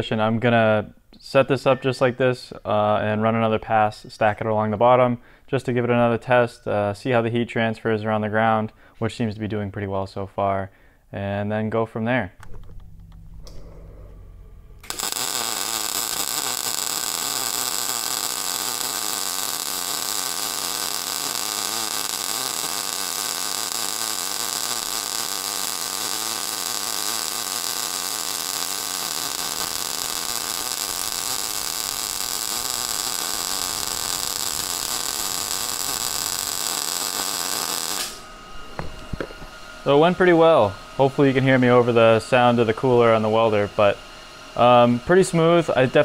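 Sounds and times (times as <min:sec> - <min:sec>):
welding arc sizzling: 0:14.8 - 0:44.0.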